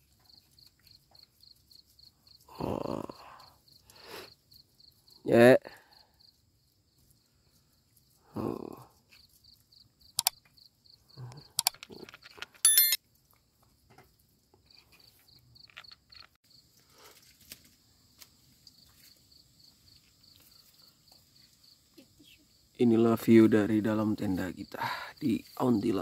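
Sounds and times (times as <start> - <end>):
crickets chirping: 0.0 - 26.0
sharp clicks: 10.1 - 10.4, 11.5 - 12.0
high-pitched ringing clink: 12.6 - 13.0.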